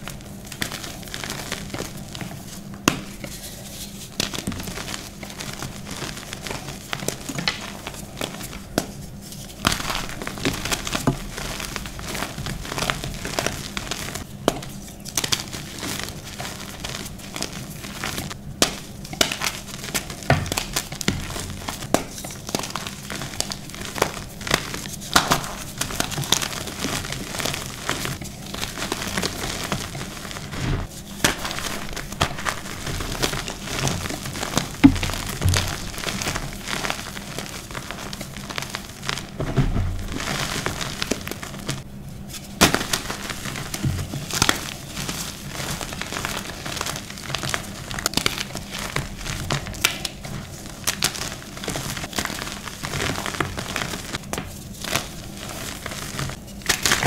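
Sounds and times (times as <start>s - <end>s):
hands crushing chalk: 0.0s - 57.0s
chalk cracking apart: 3.9s - 41.8s.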